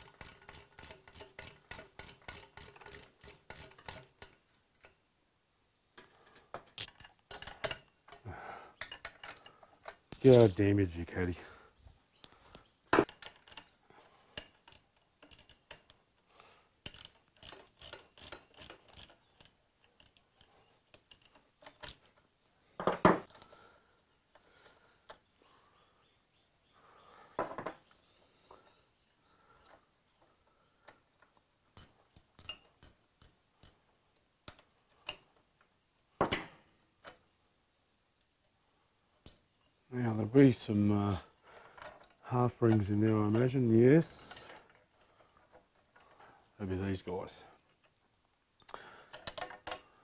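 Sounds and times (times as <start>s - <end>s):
ratchet clicks: 0.0s - 5.0s, 14.4s - 16.0s, 16.8s - 22.0s.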